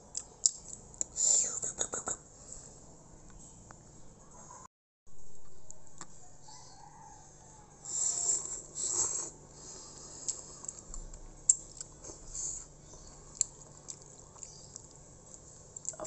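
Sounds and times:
slurping noodles: 0:07.9 - 0:10.8
chewing with wet mouth clicks: 0:10.2 - 0:12.2, 0:12.9 - 0:16.0.

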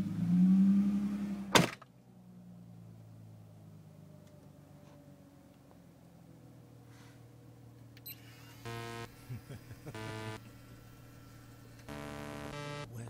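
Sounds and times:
motor whine: 0:08.0 - 0:12.9.

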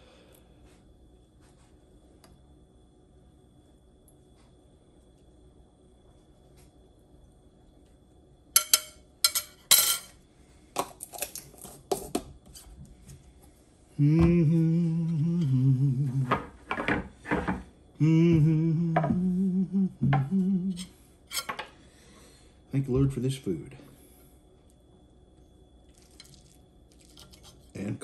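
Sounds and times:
cutlery clinking on plate: 0:08.6 - 0:10.1
man humming: 0:13.9 - 0:16.5, 0:18.0 - 0:21.0.

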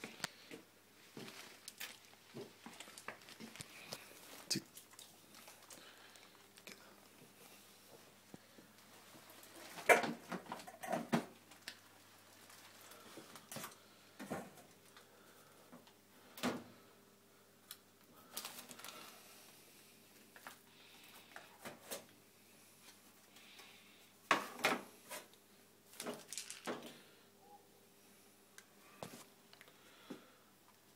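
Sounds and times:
kitchen things clicking and knocking: 0:09.8 - 0:11.3.

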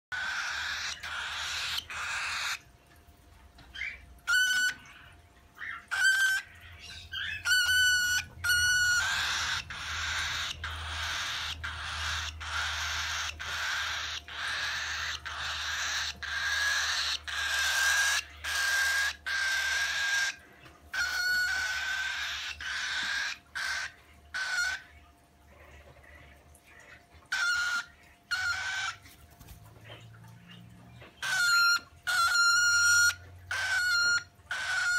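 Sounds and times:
cockatiel chattering: 0:00.1 - 0:02.6, 0:05.7 - 0:24.9, 0:31.2 - 0:34.9
cockatiel whistled chirps: 0:03.9 - 0:04.8, 0:07.2 - 0:20.4, 0:31.2 - 0:34.9.

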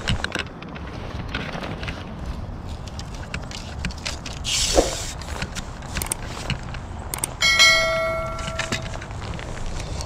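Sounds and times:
metallic bell-like ring: 0:07.4 - 0:09.0.

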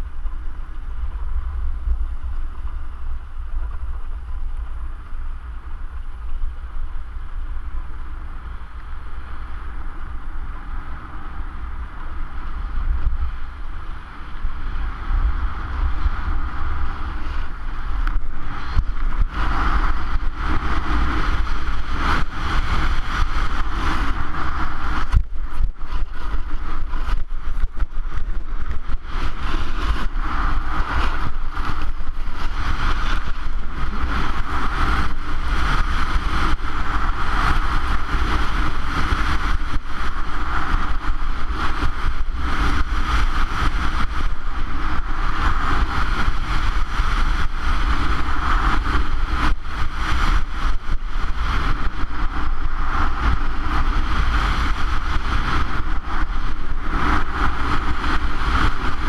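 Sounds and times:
wind buffeting microphone: 0:00.0 - 0:59.0
skis sliding on snow: 0:15.7 - 0:59.0.

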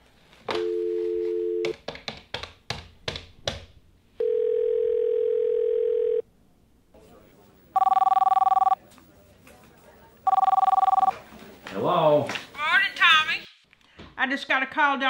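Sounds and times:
dial tone: 0:00.6 - 0:01.7, 0:04.2 - 0:06.2, 0:07.8 - 0:08.8, 0:10.3 - 0:11.1
phone dialing clicks: 0:07.8 - 0:08.8, 0:10.3 - 0:11.1
ringback tone: 0:07.8 - 0:08.8, 0:10.3 - 0:11.1.

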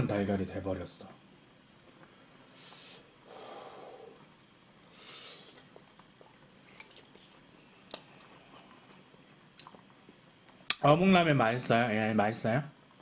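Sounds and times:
person blowing on hot food: 0:02.5 - 0:05.8.

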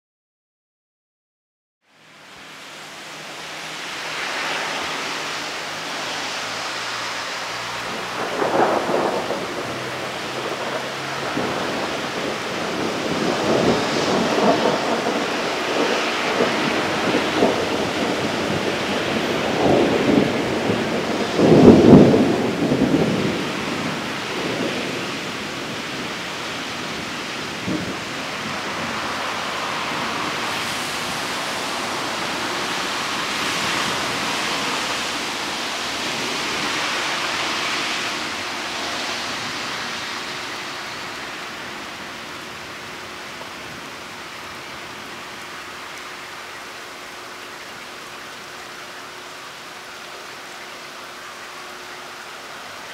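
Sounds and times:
steady rain: 0:01.8 - 0:52.9
thunder rumbling: 0:03.3 - 0:50.4.

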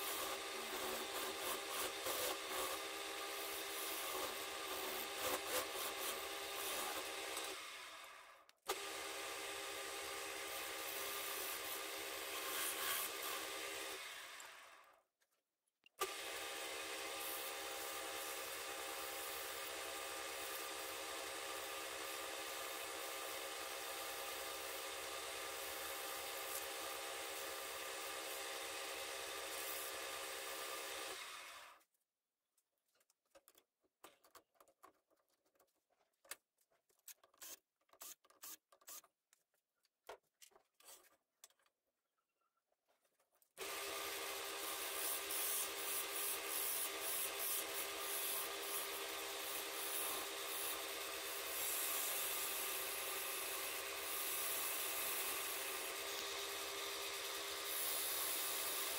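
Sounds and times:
sandpaper rubbing spinning wood: 0:00.0 - 0:02.8, 0:12.4 - 0:13.4, 0:44.5 - 0:50.8
turning tool scraping wood: 0:00.0 - 0:07.5, 0:10.8 - 0:13.5
wood lathe humming: 0:00.0 - 0:08.0, 0:43.6 - 0:58.9.

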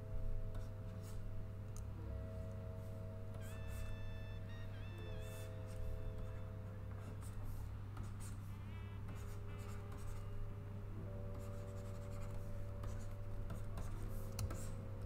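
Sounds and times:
steady low hum: 0:00.0 - 0:15.0
stylus scratching on tablet: 0:00.6 - 0:01.3, 0:03.4 - 0:10.4, 0:11.3 - 0:14.8
soft held tones: 0:01.7 - 0:06.9.

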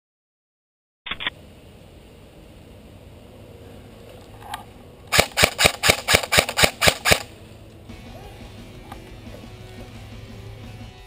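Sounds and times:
airsoft rifle rapid shots: 0:05.1 - 0:07.3.

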